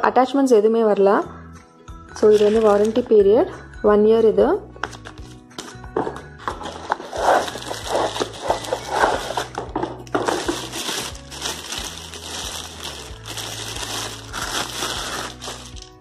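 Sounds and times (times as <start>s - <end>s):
plastic bag crinkling: 2.2s - 3.0s, 6.6s - 9.5s, 10.2s - 16.0s.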